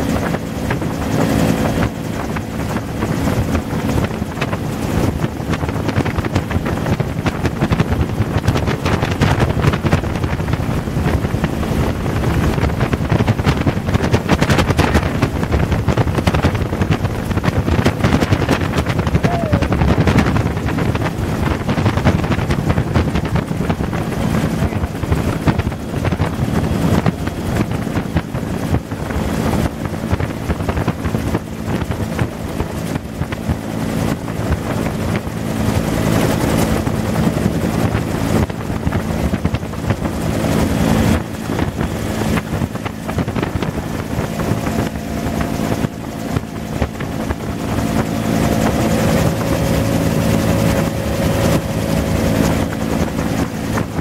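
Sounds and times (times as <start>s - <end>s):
helicopter engine and rotor: 0.0s - 54.0s
wind buffeting microphone: 0.0s - 54.0s.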